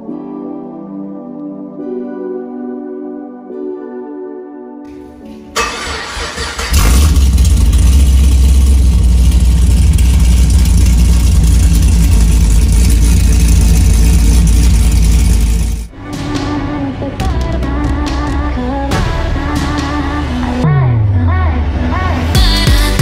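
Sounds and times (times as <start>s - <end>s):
car engine cranking and running: 5.6s - 15.9s.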